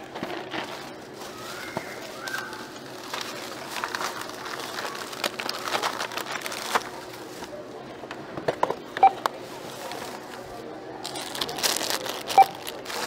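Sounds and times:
merchandise clicking and rustling: 0.0s - 13.0s.

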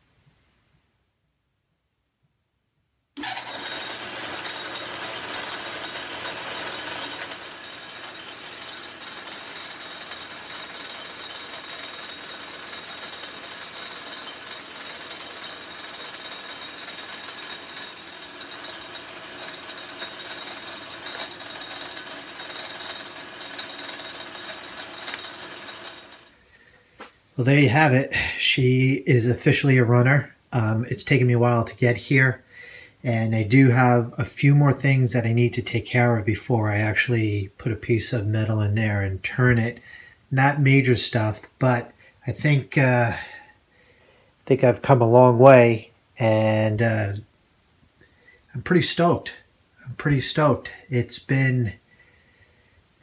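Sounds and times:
lathe running with high whine: 3.2s - 26.4s.

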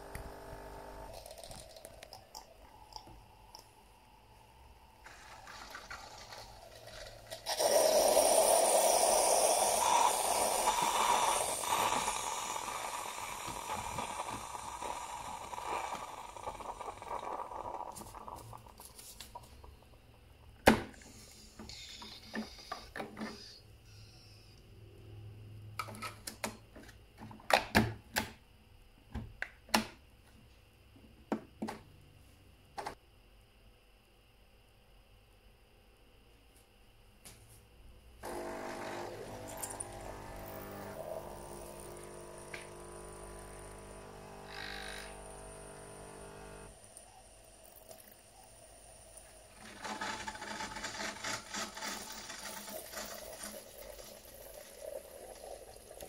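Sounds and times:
coffee machine hissing and sputtering: 0.0s - 24.1s, 38.2s - 56.0s.

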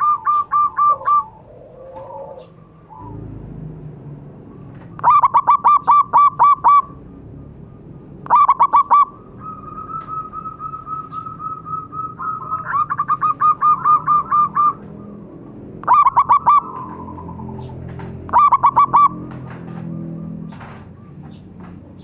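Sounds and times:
doves cooing in short clipped notes: 0.0s - 3.2s.

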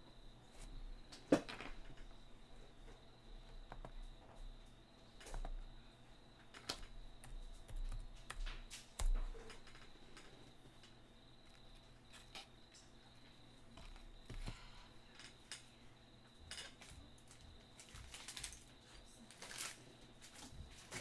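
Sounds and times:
small objects clicking on table: 6.5s - 12.9s.

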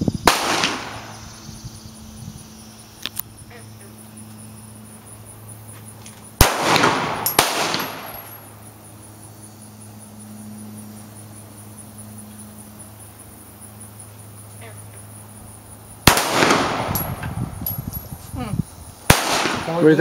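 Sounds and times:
pistol shots ringing: 0.3s - 1.1s, 6.4s - 8.4s, 16.0s - 17.2s, 19.1s - 19.9s.

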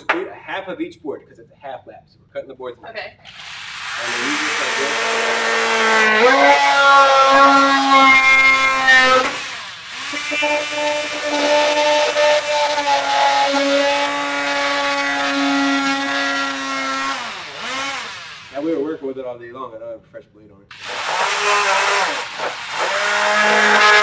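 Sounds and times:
oscillating multi-tool motor hum: 3.3s - 18.6s, 20.7s - 24.0s.

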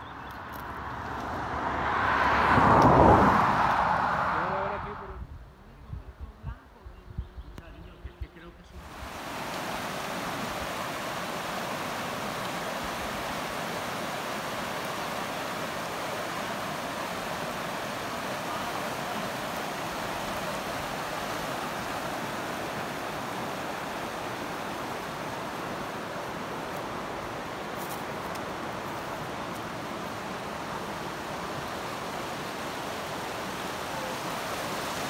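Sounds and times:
river rushing over rocks: 8.8s - 35.0s.

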